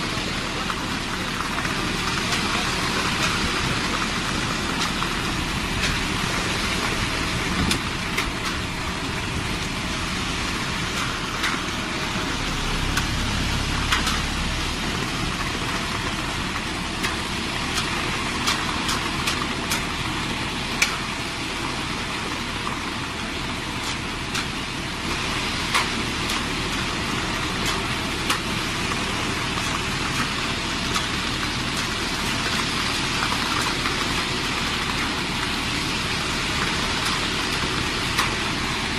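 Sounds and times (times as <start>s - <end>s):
concrete mixer engine running: 0.0s - 38.9s
deep rumble: 2.5s - 18.9s.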